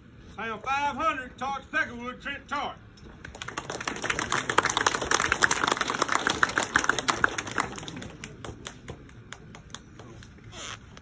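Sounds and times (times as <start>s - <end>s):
crowd applauding: 3.2s - 10.2s.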